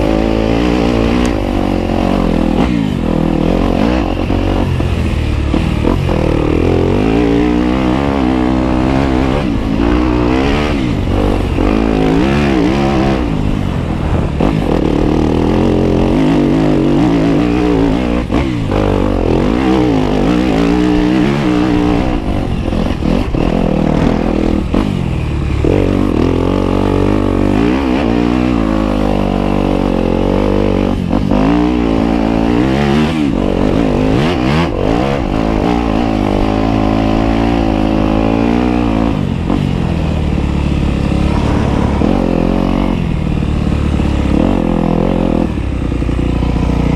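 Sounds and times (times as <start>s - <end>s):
off-road vehicle engine revving: 0.0s - 46.9s.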